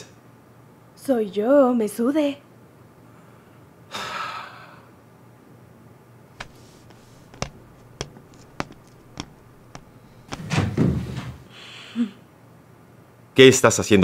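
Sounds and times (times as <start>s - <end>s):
footsteps of hard-soled shoes: 6.4s - 11.4s.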